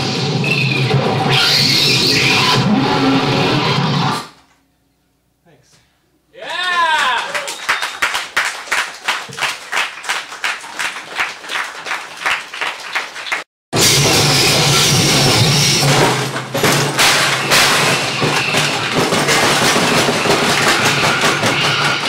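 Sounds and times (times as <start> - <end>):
sharp clattering hits: 13.8 - 22.0.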